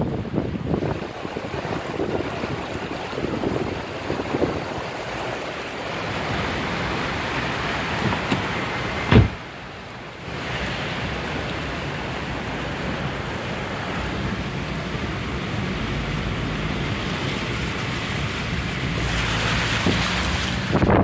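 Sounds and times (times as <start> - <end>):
tyres spraying water: 0.3 - 21.0.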